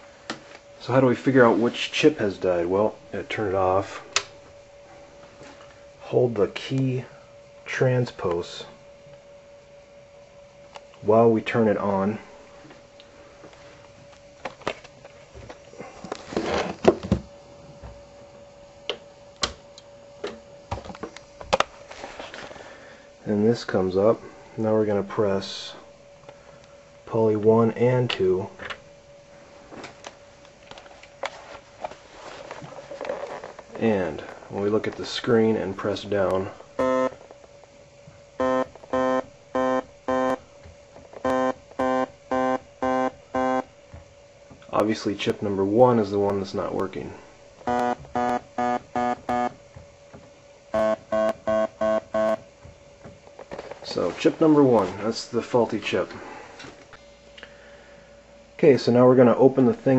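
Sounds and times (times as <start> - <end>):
handling rustle: 30.7 - 35.1
faint steady tone: 41.2 - 43.8, 50.7 - 52.5.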